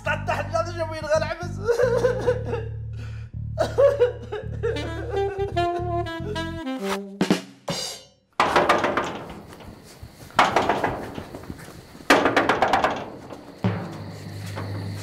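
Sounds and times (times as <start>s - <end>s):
heavy ringing bangs: 8.4s - 15.0s.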